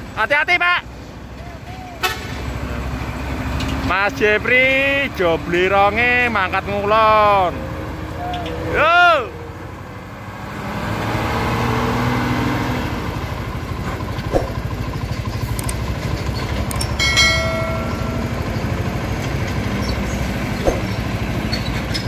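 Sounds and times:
diesel truck engine droning: 0.0s - 22.0s
short pitched tone: 7.4s - 10.0s.

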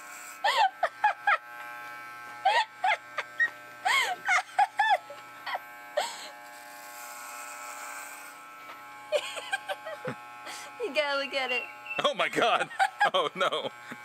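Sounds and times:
clippers rasping through hair: 0.0s - 14.0s
electric hair clippers buzzing: 0.0s - 14.0s
people laughing: 0.5s - 1.4s, 2.4s - 5.6s, 9.1s - 10.2s, 12.0s - 14.0s.

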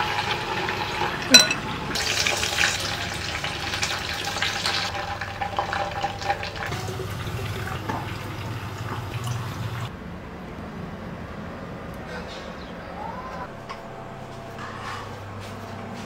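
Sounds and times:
hot oil bubbling and crackling: 0.0s - 9.9s.

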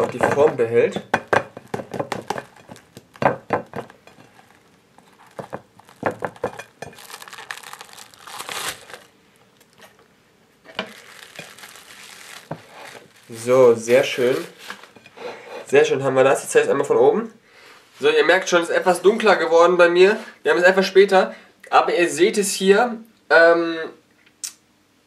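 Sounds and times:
cling film crinkling: 2.2s - 10.0s, 10.7s - 15.0s.

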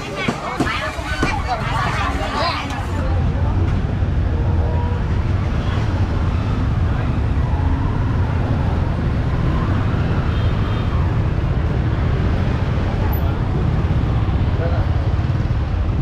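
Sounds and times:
people talking: 0.0s - 6.1s
street traffic rumble: 0.0s - 16.0s.

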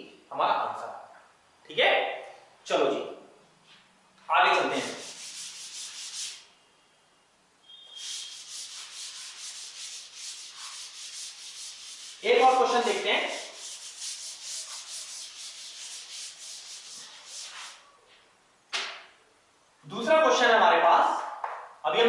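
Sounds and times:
eraser rubbing chalkboard: 4.6s - 6.5s, 7.9s - 17.9s.

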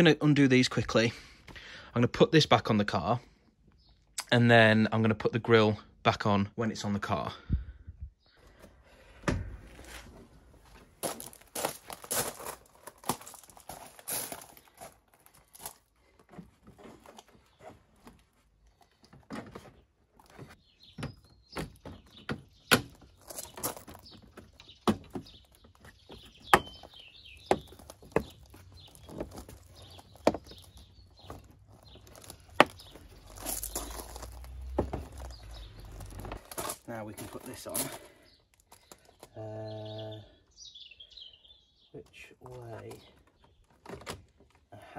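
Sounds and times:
birds chirping: 6.8s - 9.7s, 16.8s - 44.9s
footsteps on gravel: 9.7s - 18.6s, 22.9s - 39.4s.

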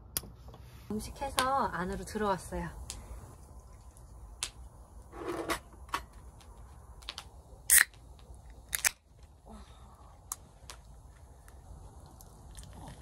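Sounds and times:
small hard objects clicking: 6.3s - 9.3s.

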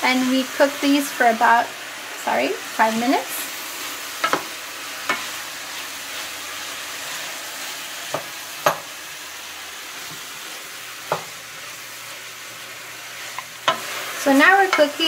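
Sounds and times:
vegetables sizzling in oil: 0.0s - 15.0s
spoon knocking against pan: 4.2s - 4.5s, 8.1s - 8.9s, 11.1s - 11.3s.

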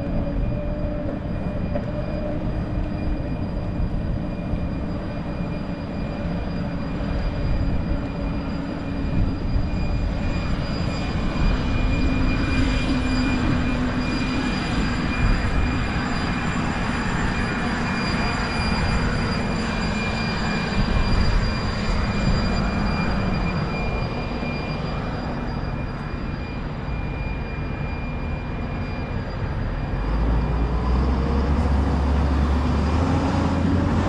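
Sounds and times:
heavy vehicle rumble: 27.6s - 34.0s
street traffic road noise: 28.5s - 34.0s.

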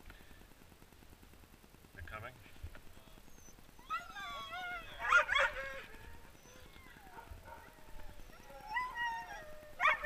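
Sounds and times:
dogs whining: 3.2s - 10.0s.

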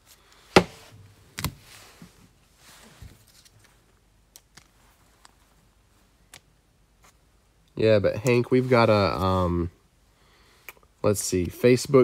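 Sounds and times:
faint rustling of foil packs: 1.6s - 4.0s.

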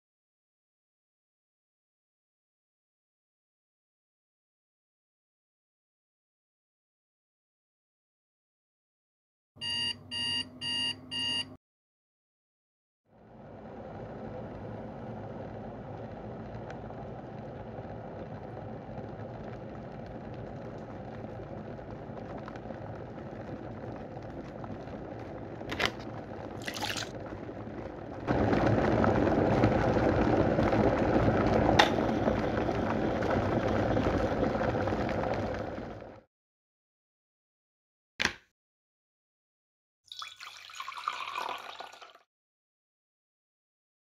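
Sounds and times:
water rushing: 23.3s - 36.1s.

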